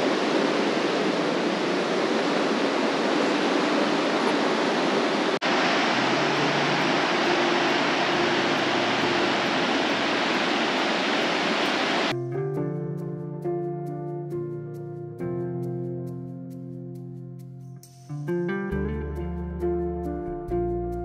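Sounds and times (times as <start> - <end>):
waterfall roaring: 0.0 - 12.1.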